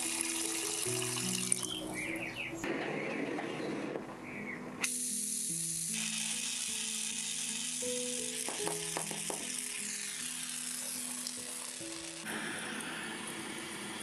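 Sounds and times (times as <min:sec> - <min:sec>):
soft background music: 0:00.0 - 0:14.0
gas torch hissing: 0:04.8 - 0:14.0.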